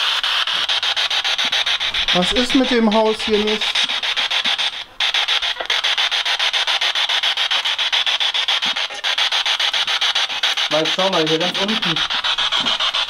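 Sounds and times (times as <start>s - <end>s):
radio static chopping rapidly: 0.0s - 7.5s, 10.5s - 13.0s.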